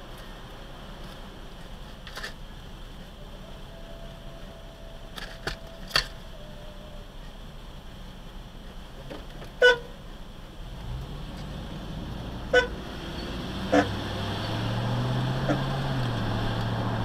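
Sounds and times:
traffic engines humming: 0:00.0 - 0:17.0
short car horn toots: 0:12.5 - 0:12.8.

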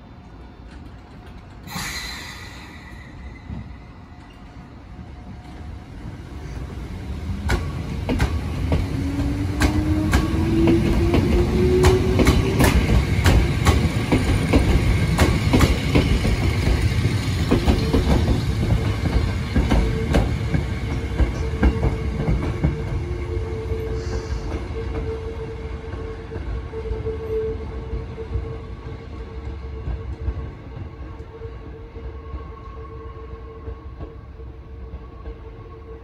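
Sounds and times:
train wheels clicking over rail joints: 0:07.4 - 0:22.9.

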